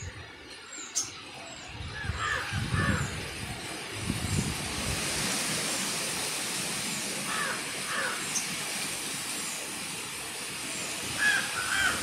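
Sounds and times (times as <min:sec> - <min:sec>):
bird calls: 0:00.0 - 0:03.8, 0:10.6 - 0:12.0
wind rustling leaves: 0:00.0 - 0:12.0.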